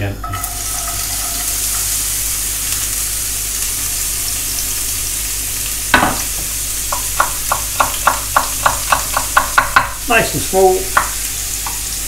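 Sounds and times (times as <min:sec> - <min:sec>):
onions sizzling in a frying pan: 0:00.0 - 0:12.0
knife chopping on wooden board: 0:06.9 - 0:10.0, 0:10.9 - 0:11.2.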